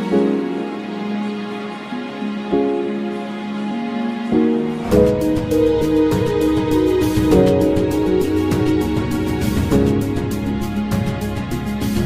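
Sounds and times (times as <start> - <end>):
background music with quick beat: 4.8 - 12.0.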